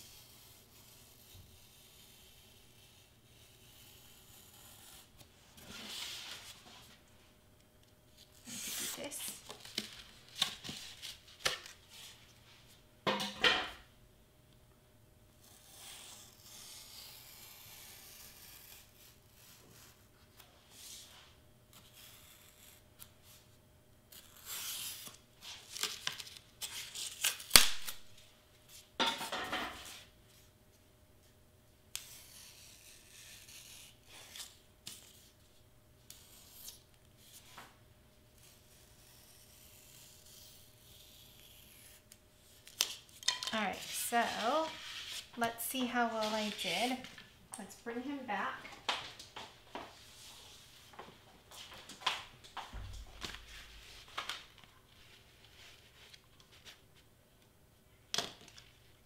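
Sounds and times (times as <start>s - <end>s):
craft knife cutting paper: 0.1s - 6.5s, 15.4s - 20.0s, 21.8s - 23.4s, 24.1s - 27.7s, 32.0s - 35.3s, 38.4s - 45.3s.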